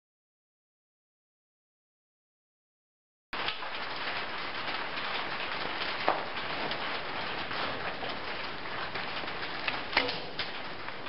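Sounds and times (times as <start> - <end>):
rain on a metal roof: 3.4 - 11.0.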